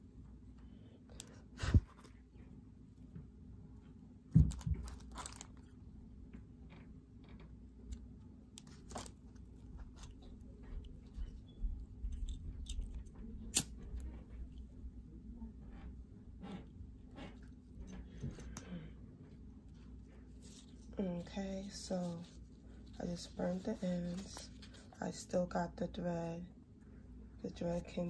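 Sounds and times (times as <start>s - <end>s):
ribbon rustling: 8.6s - 13.9s, 20.0s - 25.0s.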